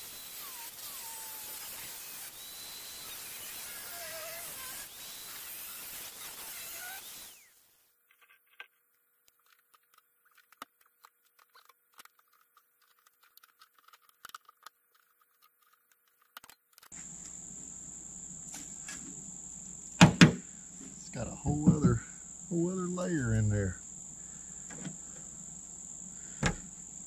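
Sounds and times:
power tool cutting: 0.0s - 7.7s
faint outdoor background noise: 0.0s - 27.0s
cricket trilling: 0.1s - 7.5s, 17.0s - 27.0s.

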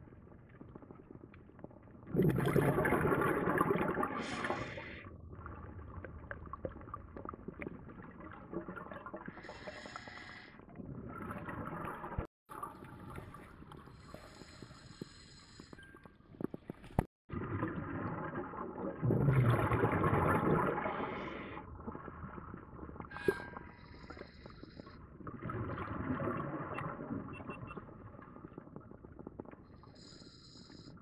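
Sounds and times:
exhaled bubbles rushing: 2.0s - 9.5s, 17.3s - 23.1s, 25.1s - 29.5s.

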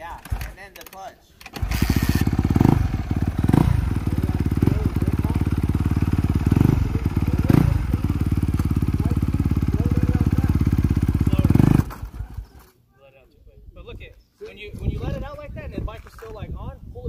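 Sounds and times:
dirt bike engine idling and revving: 1.5s - 12.7s.

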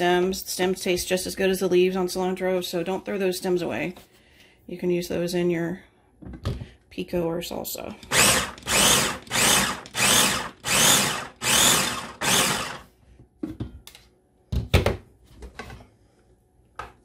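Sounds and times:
food chopper motor bursts: 8.0s - 12.9s.

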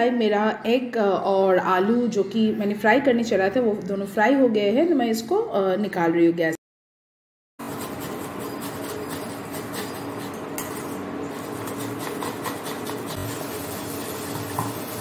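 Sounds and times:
onion rasping on grater: 7.6s - 15.0s.

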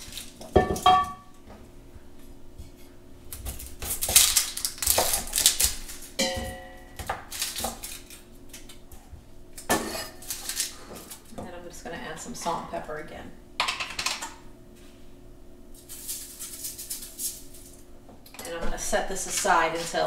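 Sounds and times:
metal pot clinking on counter: 0.6s - 1.2s.

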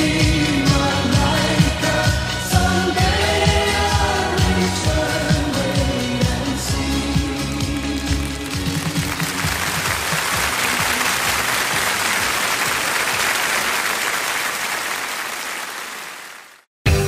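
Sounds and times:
audience applause: 7.6s - 16.7s.

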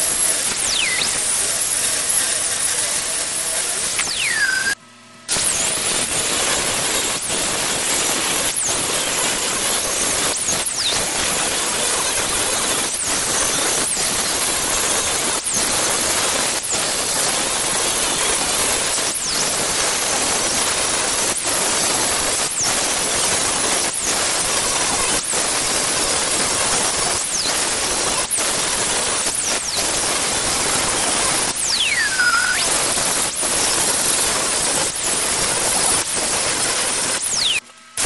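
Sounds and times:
short falling whistles: 0.6s - 1.3s, 4.0s - 4.8s, 31.6s - 32.9s, 37.3s - 37.6s.

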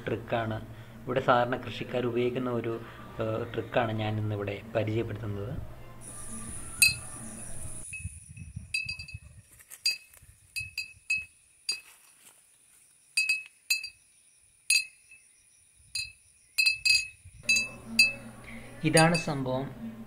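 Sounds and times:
glass bottles clinking in wind: 6.6s - 12.1s, 13.2s - 14.0s, 14.7s - 15.3s, 15.9s - 18.3s, 18.9s - 19.4s.

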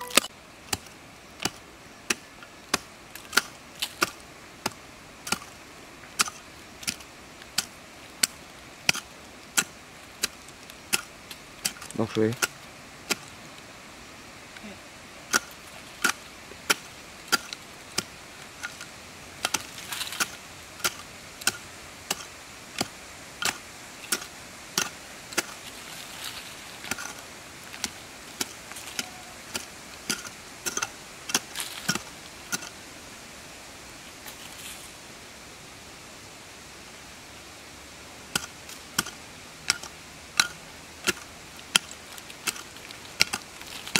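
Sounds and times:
loose soil scraping: 14.5s - 32.9s, 38.3s - 43.9s
pick striking dirt: 15.3s - 32.8s, 38.3s - 43.9s.

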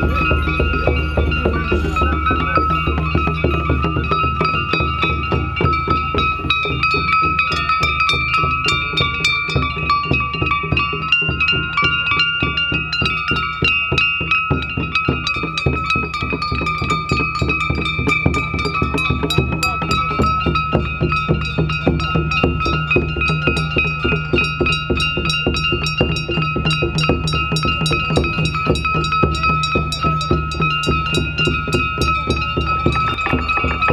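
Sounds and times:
drums beaten fast: 0.0s - 33.9s
metal gongs ringing: 0.0s - 33.9s.

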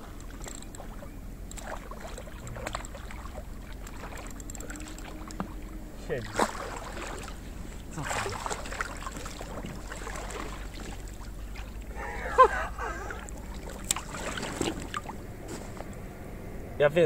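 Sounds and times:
water splashing and sloshing: 0.0s - 16.5s.

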